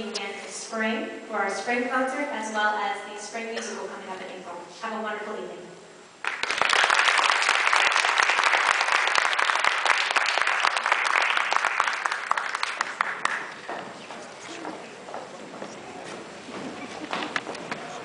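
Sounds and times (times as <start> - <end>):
audience applauding: 6.2 - 14.8.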